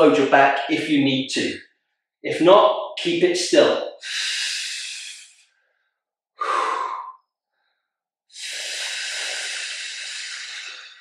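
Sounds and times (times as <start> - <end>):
man exhaling hard: 6.4 - 7.2, 8.4 - 11.0.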